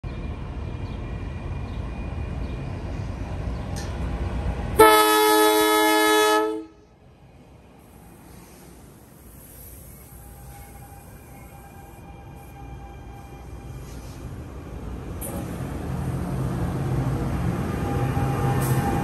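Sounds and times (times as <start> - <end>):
railcar rumbling: 0.0 - 19.0
train horn chord: 4.8 - 6.9.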